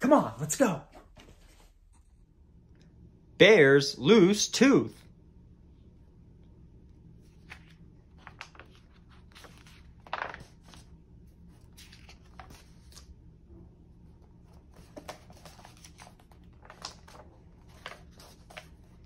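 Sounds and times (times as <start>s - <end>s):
book pages turning: 7.2s - 13.2s, 14.1s - 19.0s.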